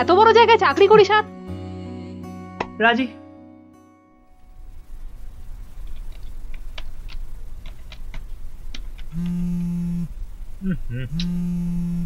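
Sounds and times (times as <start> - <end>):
smartphone vibrating buzz: 9.1 - 12.0.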